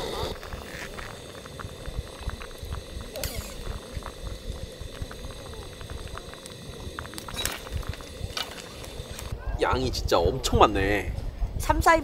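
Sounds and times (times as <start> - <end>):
soup boiling and bubbling: 0.0 - 9.3.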